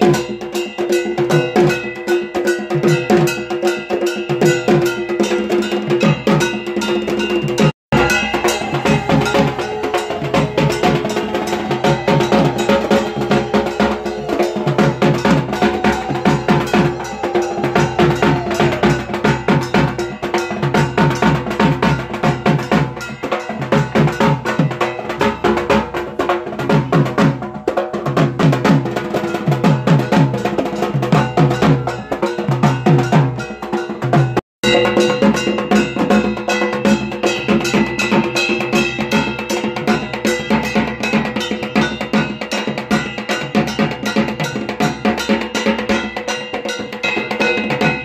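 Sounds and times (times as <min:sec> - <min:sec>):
clanging metal bell beat: 0:00.0 - 0:48.0
drums beaten in fast rhythm: 0:00.0 - 0:48.0.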